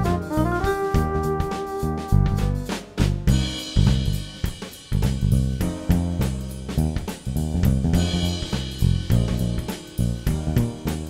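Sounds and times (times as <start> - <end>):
drum kit beat: 0.0 - 11.0.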